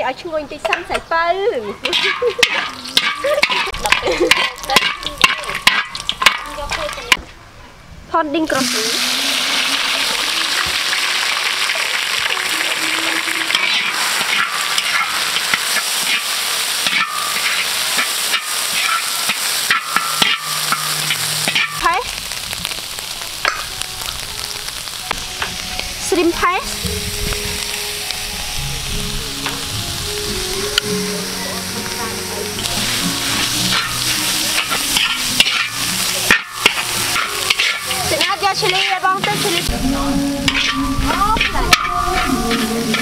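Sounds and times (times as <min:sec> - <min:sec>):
steel spoon scraping wok: 0:01.7 - 0:07.2, 0:08.5 - 0:22.3, 0:30.8 - 0:43.0
paste sizzling in hot oil: 0:01.8 - 0:07.1, 0:08.5 - 0:43.0.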